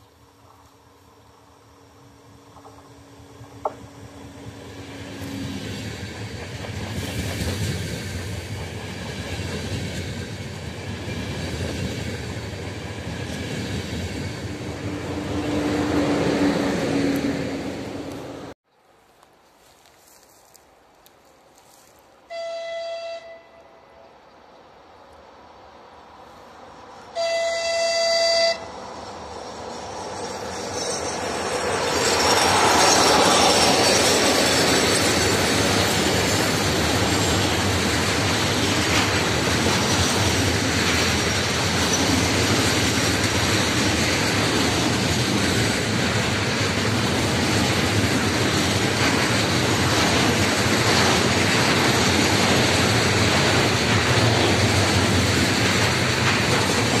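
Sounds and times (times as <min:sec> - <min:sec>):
wheels rumbling on rails: 0:00.0 - 0:18.6, 0:25.3 - 0:57.0
train passing: 0:00.0 - 0:57.0
train horn blast: 0:22.2 - 0:24.1, 0:27.1 - 0:28.7.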